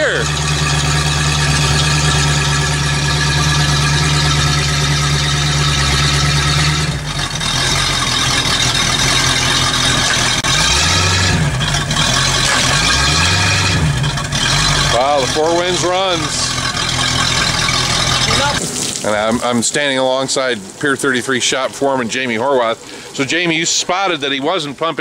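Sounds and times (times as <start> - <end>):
man talking: 0.0 - 0.3, 14.9 - 16.6, 18.2 - 25.0
boat engine running: 0.0 - 25.0.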